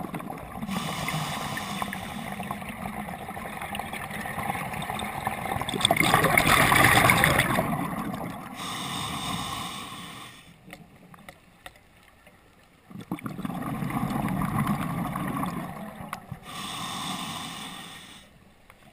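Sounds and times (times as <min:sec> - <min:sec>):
exhaled bubbles gurgling underwater: 0:00.0 - 0:11.3, 0:12.8 - 0:18.2
regulator hissing inhale: 0:00.6 - 0:02.5, 0:08.6 - 0:10.6, 0:16.4 - 0:18.4.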